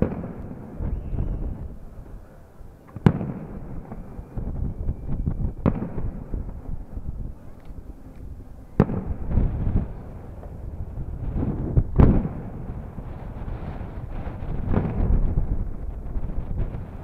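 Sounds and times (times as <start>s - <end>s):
small firework pops: 0.0s - 1.7s, 2.8s - 4.5s, 5.2s - 6.3s.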